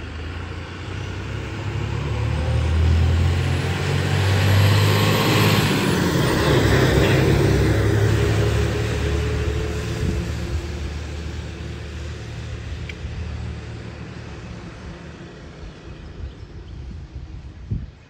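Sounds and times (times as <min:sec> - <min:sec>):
truck engine rumbling: 0:00.0 - 0:17.4.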